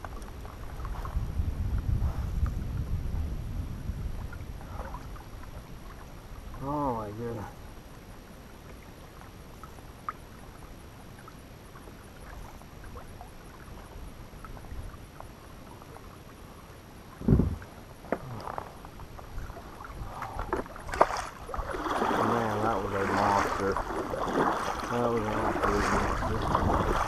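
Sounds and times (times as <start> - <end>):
water lapping against kayak hull: 0.0 - 27.0
heavy thump on hull: 17.2 - 18.3.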